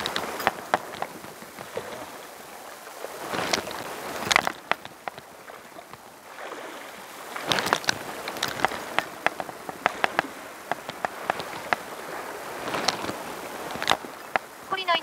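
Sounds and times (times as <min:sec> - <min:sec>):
seawater lapping among rocks: 0:00.0 - 0:15.0
sharp ticks: 0:08.5 - 0:11.8.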